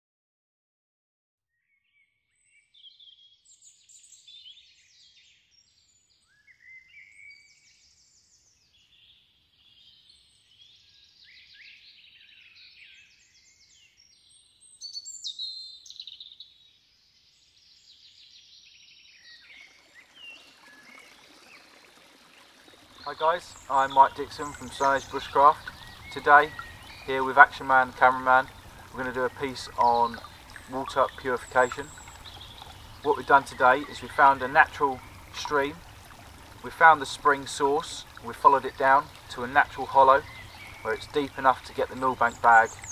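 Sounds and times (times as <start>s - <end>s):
birds chirping and trilling: 1.7s - 42.9s
stream trickling: 2.8s - 42.9s.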